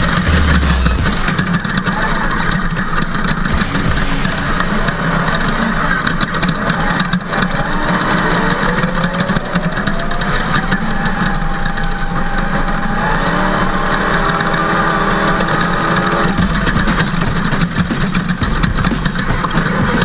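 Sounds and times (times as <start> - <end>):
steady rush of noise: 0.0 - 2.6, 3.4 - 7.4
buggy engine accelerating: 5.6 - 16.4.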